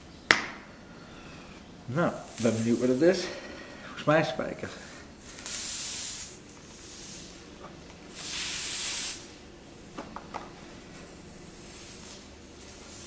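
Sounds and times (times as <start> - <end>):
air hissing from tyre: 5.2 - 7.4, 8.1 - 9.4, 11.0 - 13.0.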